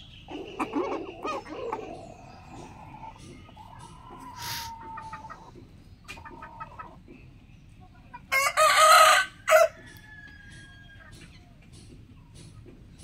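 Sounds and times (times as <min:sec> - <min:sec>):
rooster crowing: 0:08.3 - 0:11.0.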